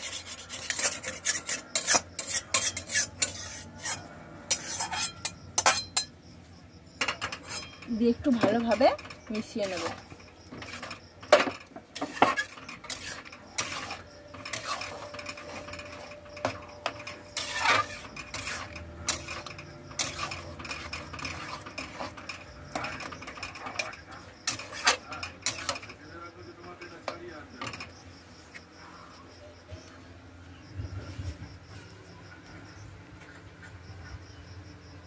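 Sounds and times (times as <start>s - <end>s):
utensil stirring thick dal: 0.0s - 6.1s, 7.0s - 28.0s
utensil clinking metal pan: 0.6s - 6.2s, 7.0s - 26.0s.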